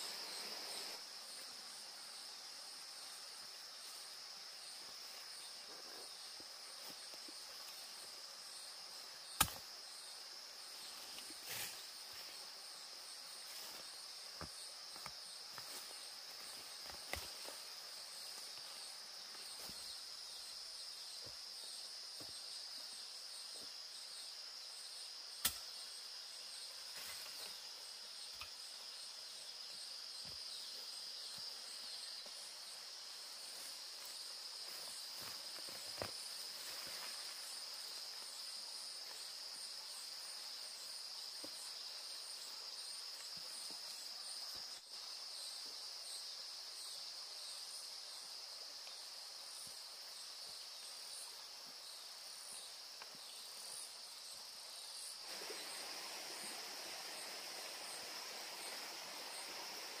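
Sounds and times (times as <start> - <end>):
high-pitched insect chorus: 0.0 - 60.0.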